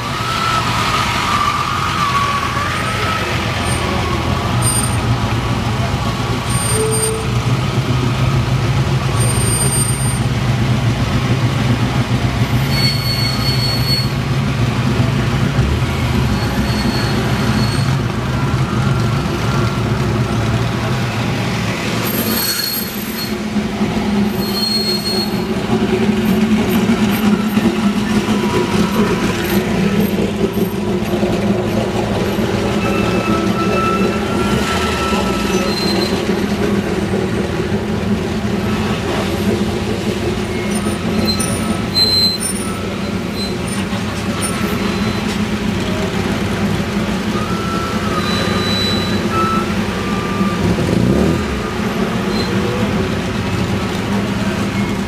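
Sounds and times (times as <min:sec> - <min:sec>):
brief high-pitched squeals: 0:00.2 - 0:05.1, 0:06.5 - 0:07.4, 0:12.6 - 0:14.2, 0:16.3 - 0:18.5, 0:22.0 - 0:23.4, 0:24.3 - 0:25.6, 0:32.7 - 0:36.6, 0:40.4 - 0:45.4, 0:47.3 - 0:52.9
sports car engines running: 0:02.5 - 0:55.0.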